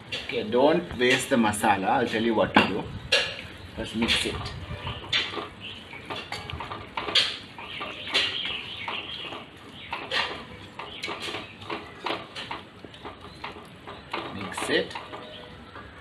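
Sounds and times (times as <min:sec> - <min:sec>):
wooden spatula scraping a pot: 0:04.1 - 0:15.5.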